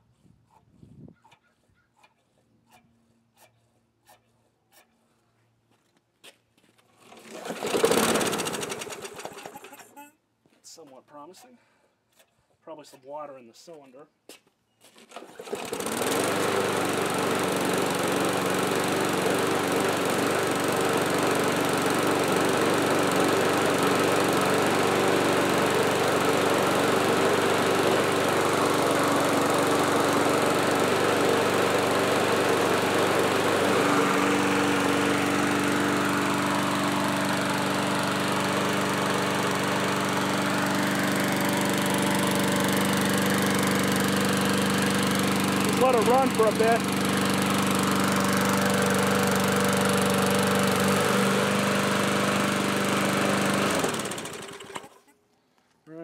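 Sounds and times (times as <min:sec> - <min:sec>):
lawn mower engine running: 0:07.0 - 0:09.9, 0:15.1 - 0:55.1.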